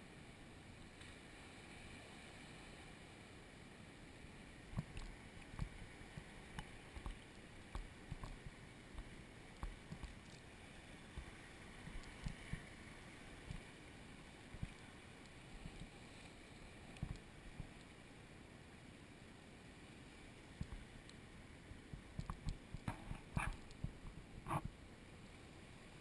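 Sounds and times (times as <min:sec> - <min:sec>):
faint hiss of water: 0:00.0 - 0:26.0
paddle knocking and splashing: 0:04.7 - 0:10.4, 0:11.1 - 0:12.7.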